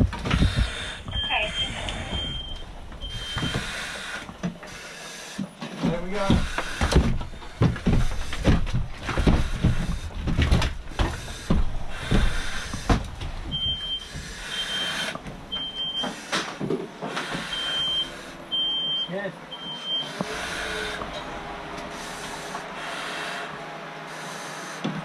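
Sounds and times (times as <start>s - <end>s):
smoke alarm beeping: 1.0s - 4.0s, 13.5s - 16.2s, 17.5s - 20.2s.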